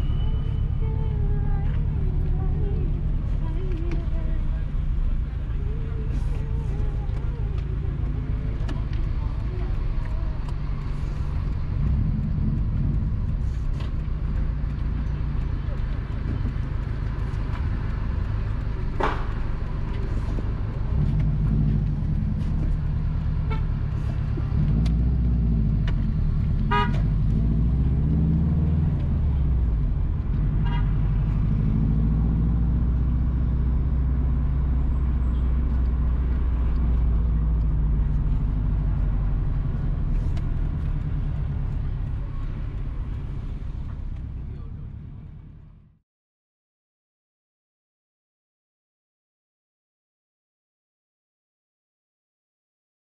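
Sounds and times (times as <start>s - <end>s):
car engine and road rumble: 0.0s - 46.0s
car horn toots: 23.4s - 23.8s, 26.6s - 27.1s, 30.6s - 31.0s.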